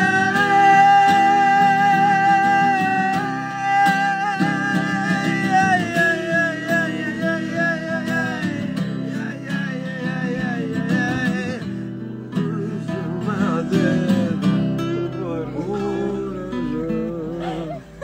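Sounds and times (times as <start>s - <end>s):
acoustic guitars playing: 0.0s - 18.0s
man singing held notes: 12.4s - 18.0s.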